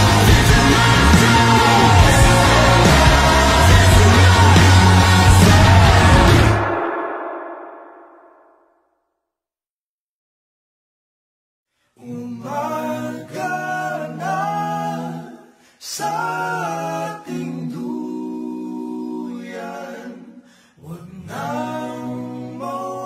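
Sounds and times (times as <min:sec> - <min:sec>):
voices singing in harmony: 0:00.0 - 0:07.4, 0:12.0 - 0:23.0
singers breathing: 0:20.4 - 0:20.8.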